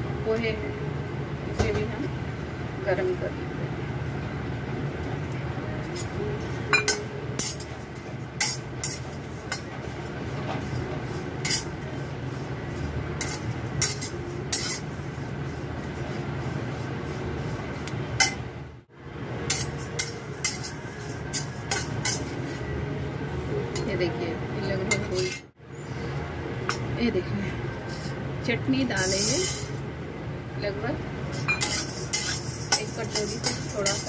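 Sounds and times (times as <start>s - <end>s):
steady low hum: 0.0s - 34.0s
metal spatula scraping a pan: 6.0s - 17.6s, 19.5s - 22.7s, 29.0s - 29.8s, 31.3s - 34.0s.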